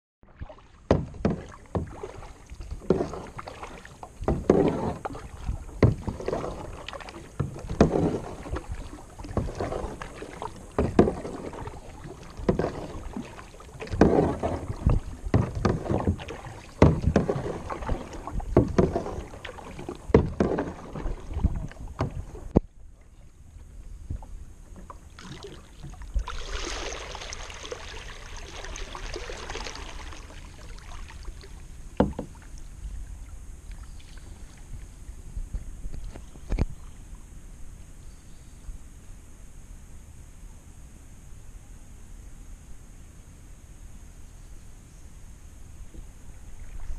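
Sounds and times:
kayak paddle splashes and knocks: 0:00.2 - 0:37.0, 0:45.8 - 0:46.9
water rushing: 0:00.3 - 0:23.3, 0:24.7 - 0:34.6.

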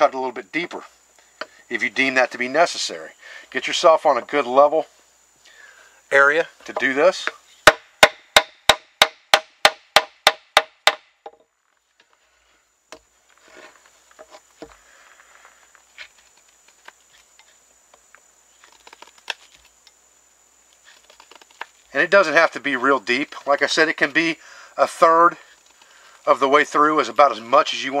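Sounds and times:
knife scraping wood: 0:13.4 - 0:14.8, 0:20.8 - 0:21.9.

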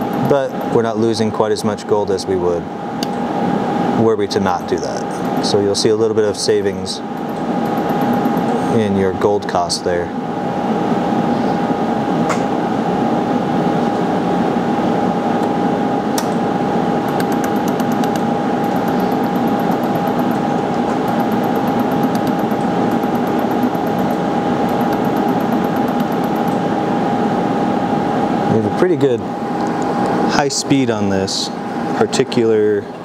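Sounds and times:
fan hum: 0:00.0 - 0:33.0
laser welder ticking: 0:07.2 - 0:08.5, 0:17.0 - 0:26.6.

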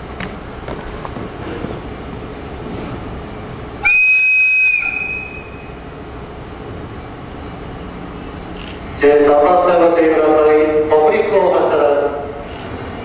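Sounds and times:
station platform rumble: 0:00.0 - 0:13.0
high whistle blast: 0:03.8 - 0:05.7.

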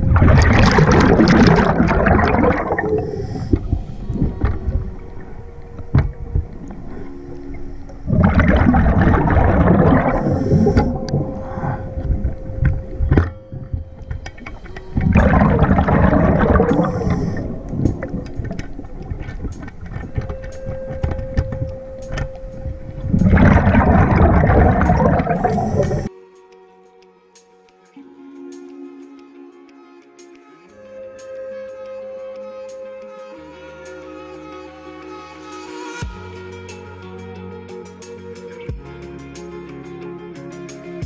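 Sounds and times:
exhaled bubbles rushing: 0:00.0 - 0:21.6, 0:22.6 - 0:26.1
quiet bubbling: 0:00.0 - 0:26.1
clicks: 0:00.1 - 0:26.1
diver breathing through regulator: 0:02.1 - 0:05.3, 0:06.8 - 0:12.6, 0:14.5 - 0:19.8
faint steady tone: 0:02.4 - 0:26.1.

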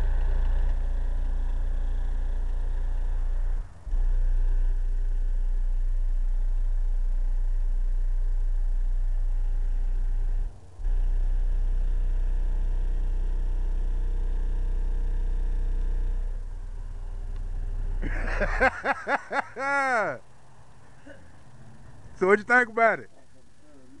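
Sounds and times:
deep subwoofer bass note: 0:00.0 - 0:18.1.

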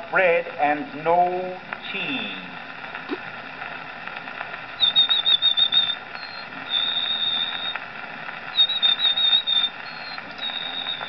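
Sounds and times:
record surface hiss: 0:00.0 - 0:11.0
man whistling birdsong: 0:04.8 - 0:07.8, 0:08.5 - 0:11.0.

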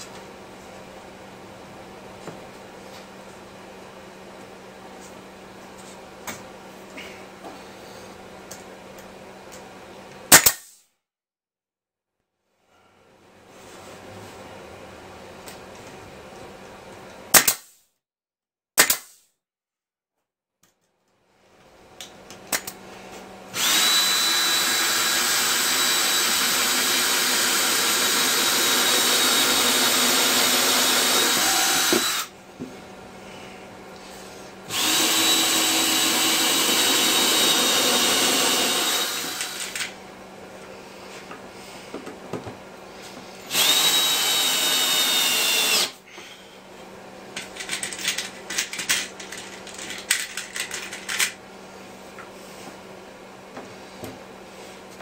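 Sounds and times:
power tool whining: 0:23.5 - 0:32.3, 0:34.7 - 0:39.9, 0:43.4 - 0:46.0
handling clicks and clatter: 0:47.4 - 0:51.4.

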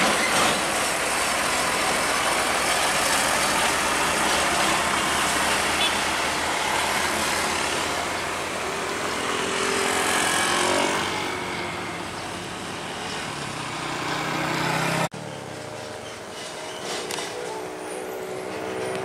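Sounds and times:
truck engine and tyre noise: 0:00.0 - 0:19.0
motor scooter passing: 0:03.0 - 0:15.7.

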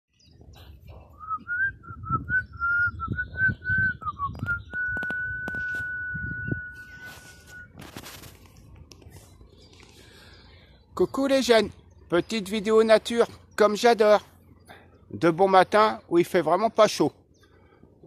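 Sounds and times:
low thumps and clicks: 0:00.4 - 0:06.8
person whistling a tune: 0:01.2 - 0:07.8
rustling rush: 0:05.1 - 0:10.2.

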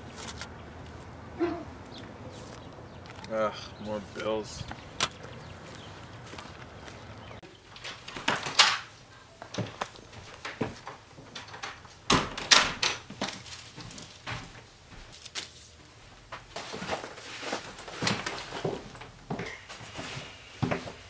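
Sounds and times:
footsteps: 0:00.0 - 0:08.4, 0:13.0 - 0:21.0
wooden door shutting and latching: 0:11.4 - 0:13.1.

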